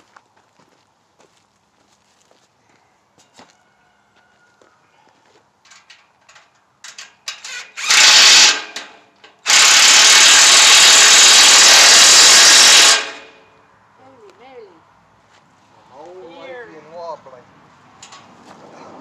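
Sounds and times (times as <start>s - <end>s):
cordless power driver running: 7.7s - 8.8s, 9.5s - 13.2s.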